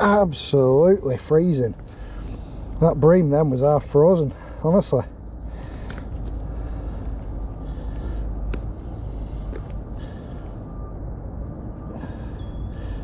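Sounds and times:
steady low rumble: 0:00.0 - 0:13.0.

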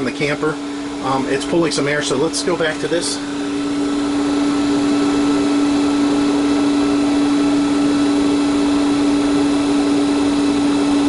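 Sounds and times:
roof vent fan humming: 0:00.0 - 0:11.0.

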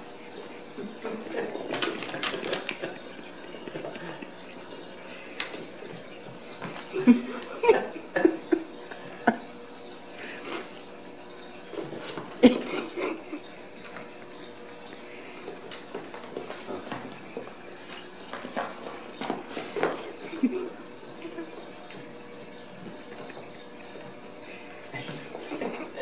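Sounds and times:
paws and toys clattering on tile: 0:01.0 - 0:07.6, 0:15.2 - 0:22.1.

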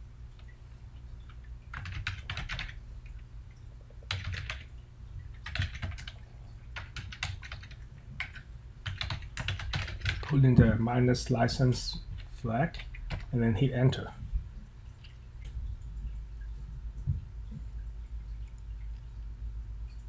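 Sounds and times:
faint low hum: 0:00.0 - 0:20.0
computer keyboard typing: 0:01.4 - 0:02.8, 0:04.0 - 0:04.7, 0:05.4 - 0:10.3, 0:12.2 - 0:13.3.

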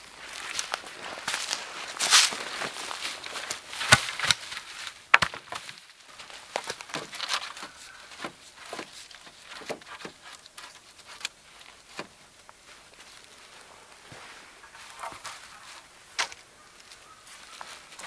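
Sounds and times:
dry pine needles rustling: 0:00.0 - 0:18.0
wooden poles knocking together: 0:03.2 - 0:12.6.

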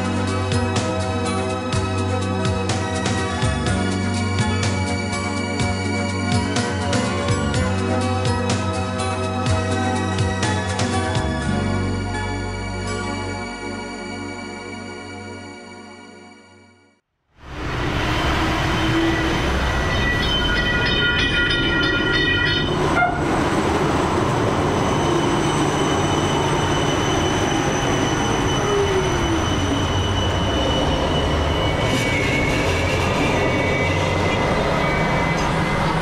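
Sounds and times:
tram rumbling past: 0:17.4 - 0:36.0
high whining tones: 0:17.5 - 0:23.1, 0:24.7 - 0:36.0.

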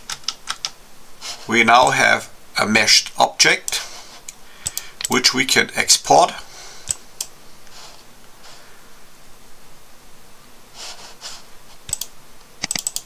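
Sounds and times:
soft breaths into microphone: 0:03.8 - 0:05.0, 0:06.4 - 0:09.1
computer mouse clicks: 0:04.6 - 0:05.2, 0:11.8 - 0:13.0.

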